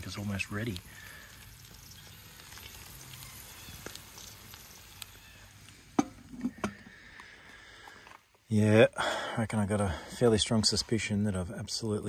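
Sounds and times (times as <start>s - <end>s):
campfire coals crackling and sizzling: 0.0s - 12.0s
small ticks: 0.7s - 5.8s.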